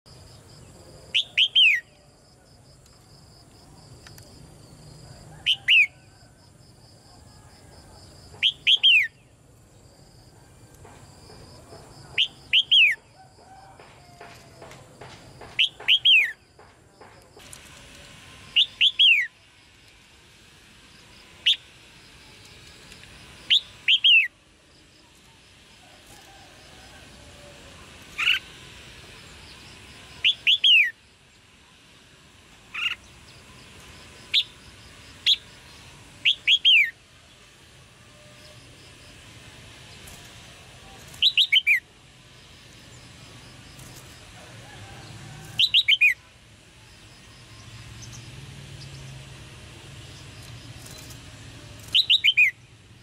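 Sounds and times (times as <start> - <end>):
bird chirping calls: 1.1 - 2.1, 8.3 - 9.4, 12.0 - 13.2, 14.2 - 16.7, 18.5 - 19.4, 23.4 - 24.3, 29.4 - 31.0, 32.7 - 33.6, 35.2 - 37.0, 40.9 - 41.9, 45.4 - 46.3, 51.8 - 52.7.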